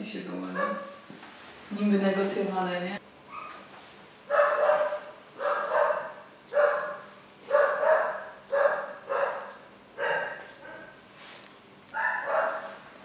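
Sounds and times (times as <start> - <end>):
dog barking: 0.5 - 1.0, 4.3 - 11.0, 11.9 - 12.9.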